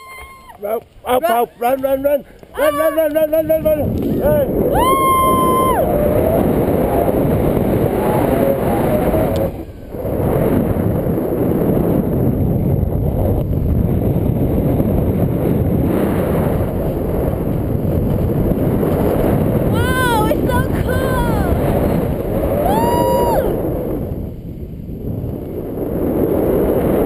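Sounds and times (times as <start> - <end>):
wind rushing over microphone: 0.0 - 27.0
person shouting: 2.6 - 3.1, 19.7 - 21.6, 22.6 - 23.6.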